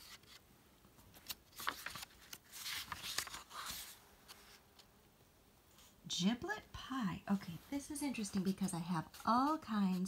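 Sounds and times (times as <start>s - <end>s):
paper pages turning: 0.0s - 0.4s, 1.0s - 4.9s, 8.1s - 10.0s.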